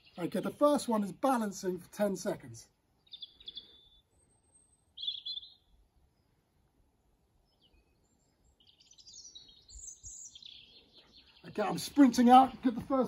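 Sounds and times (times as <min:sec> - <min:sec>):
birds chirping: 0:00.0 - 0:13.0
faint outdoor background noise: 0:00.0 - 0:13.0.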